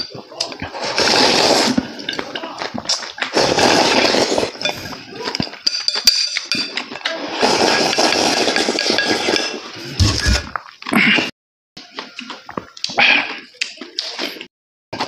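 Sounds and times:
man slurping noodles: 0.0s - 2.1s, 3.3s - 5.1s, 7.2s - 11.3s.

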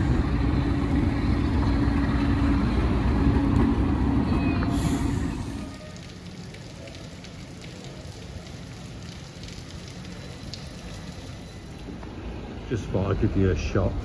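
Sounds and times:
steady rain falling: 0.0s - 14.0s
raindrops ticking close by: 5.6s - 14.0s.

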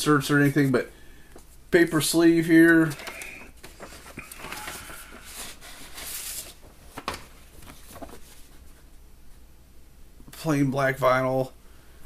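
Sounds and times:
paper record sleeve rustling: 2.2s - 8.9s.

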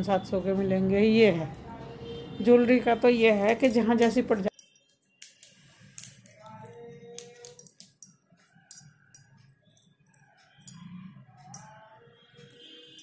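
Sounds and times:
faint music: 0.0s - 13.0s
bangles clinking and jingling: 3.0s - 13.0s.

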